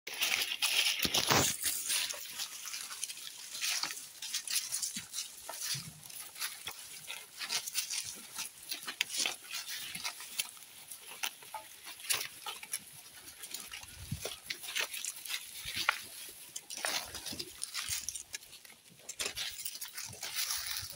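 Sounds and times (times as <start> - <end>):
leaves rustling and tearing: 0.1 - 20.9.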